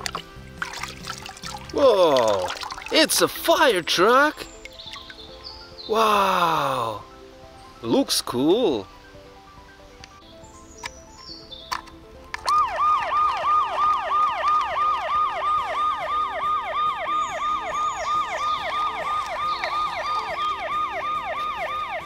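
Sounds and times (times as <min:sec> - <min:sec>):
toy siren wailing: 0:12.4 - 0:22.0.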